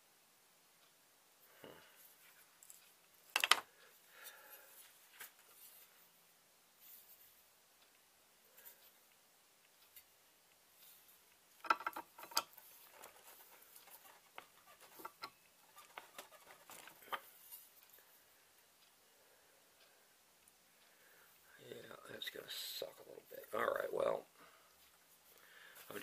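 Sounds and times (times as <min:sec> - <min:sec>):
small clicks and taps: 0:11.6 - 0:18.0.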